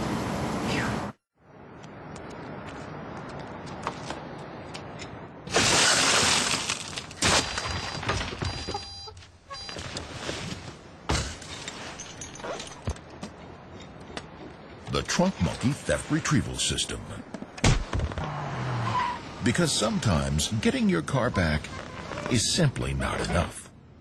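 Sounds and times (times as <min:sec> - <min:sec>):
car window glass shattering: 0:05.5 - 0:08.6
broken glass tinkling: 0:11.5 - 0:12.9.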